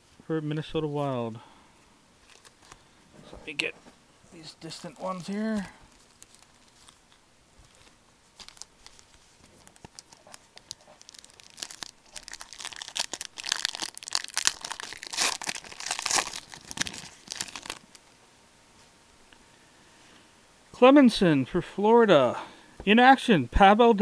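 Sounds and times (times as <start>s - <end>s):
wrapper crinkling: 2.2s - 2.8s, 4.6s - 18.0s.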